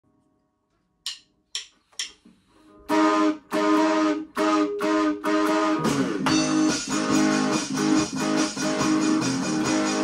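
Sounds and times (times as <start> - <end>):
rock band with guitar chords: 3.6 - 10.0.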